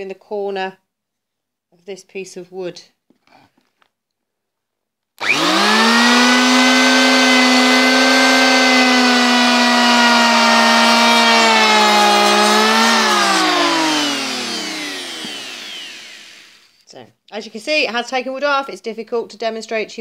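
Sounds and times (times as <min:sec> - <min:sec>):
electric hand planer whine: 0:05.2 - 0:16.8.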